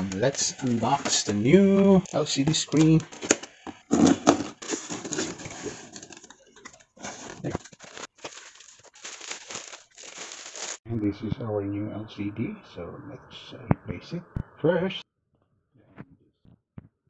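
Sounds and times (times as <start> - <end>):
bubble wrap crinkling: 0.0 - 10.8.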